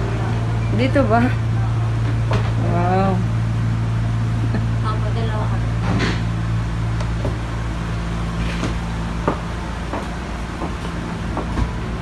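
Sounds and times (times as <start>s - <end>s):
low machinery hum: 0.0s - 12.0s.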